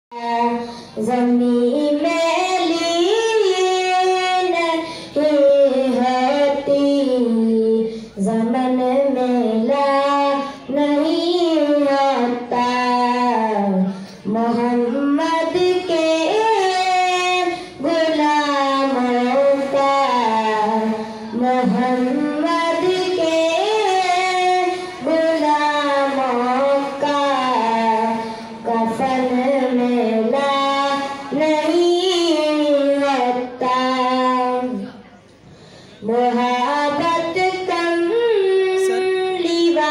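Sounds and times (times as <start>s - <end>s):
boy singing into microphone: 0.1s - 35.0s, 35.6s - 39.9s
breaths: 0.6s - 1.0s, 4.8s - 5.2s, 7.8s - 8.2s, 13.9s - 14.3s, 17.5s - 17.8s, 20.9s - 21.4s, 24.7s - 25.0s, 28.2s - 28.6s, 35.3s - 36.0s.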